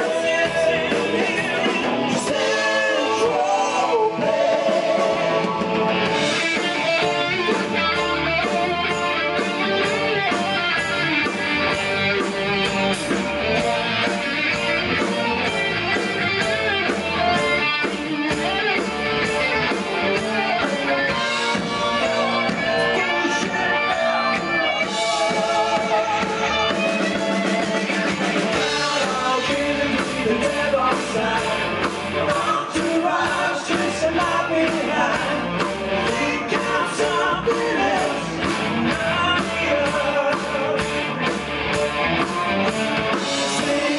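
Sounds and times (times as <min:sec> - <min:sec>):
person singing: 0:00.0 - 0:05.8, 0:20.2 - 0:41.2, 0:43.3 - 0:43.9
drums beating: 0:00.0 - 0:43.9
electric guitars: 0:00.0 - 0:43.9.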